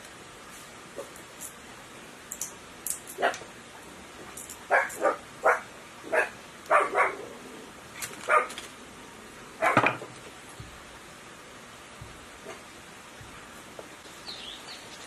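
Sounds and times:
dog barking: 4.7s - 7.2s, 8.3s - 8.5s, 9.6s - 9.8s.

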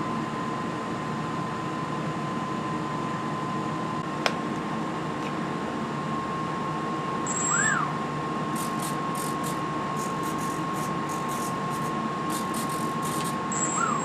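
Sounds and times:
constant high tone: 7.2s - 8.0s, 9.4s - 14.0s
speed controller whine: 7.2s - 14.0s
small electric motor whine: 7.3s - 7.9s, 8.6s - 14.0s.

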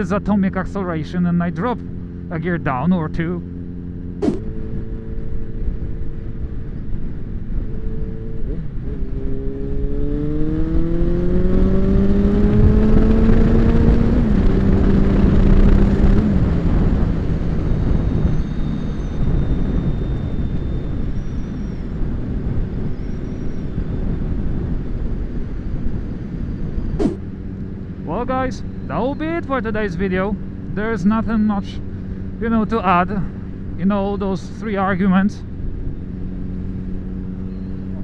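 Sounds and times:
motorcycle engine accelerating: 0.0s - 38.0s
wind rush: 4.2s - 28.0s.

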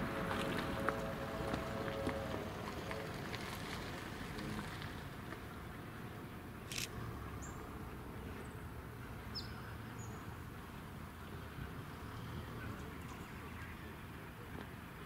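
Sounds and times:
distant steam locomotive rumble: 0.0s - 5.9s.

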